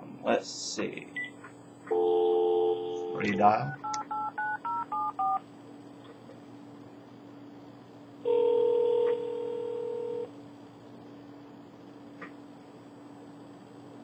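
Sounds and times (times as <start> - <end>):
faint steady hum: 0.0 - 14.0
two-pitch phone ringback tone: 8.3 - 10.3.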